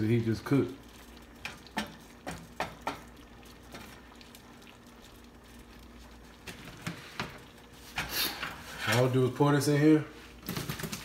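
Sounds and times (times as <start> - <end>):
sauce simmering: 0.0 - 8.8
spatula knocking and scraping pan: 1.4 - 3.1.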